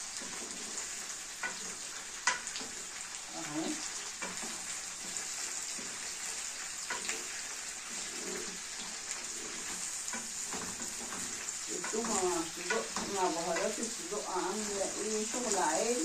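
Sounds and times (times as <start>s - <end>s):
sausages sizzling in a frying pan: 0.0s - 16.0s
spatula scraping a pan: 0.0s - 16.0s.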